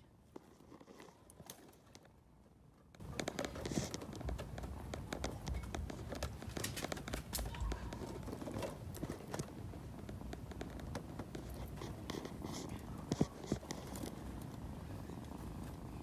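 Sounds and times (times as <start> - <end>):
small clicks and rustles: 0.2 - 16.0.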